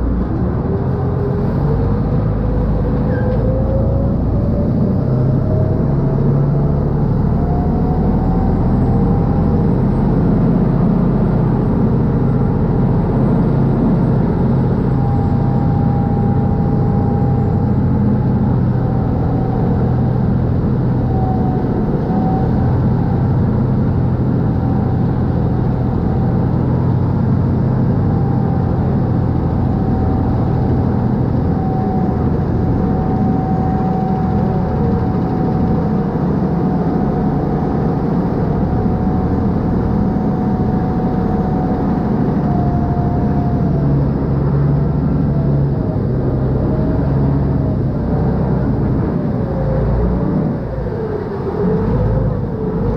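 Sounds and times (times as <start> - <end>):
boat diesel engine droning: 0.0 - 52.9.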